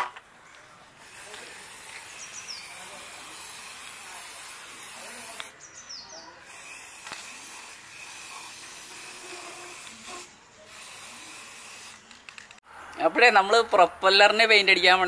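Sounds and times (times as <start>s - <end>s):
spray-paint can hissing: 1.0s - 5.6s, 6.4s - 12.1s.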